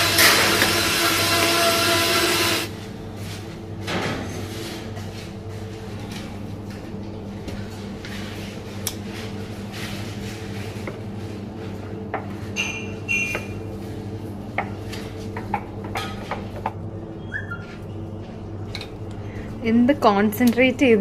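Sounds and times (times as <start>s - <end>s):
kitchen equipment hum: 0.0s - 21.0s.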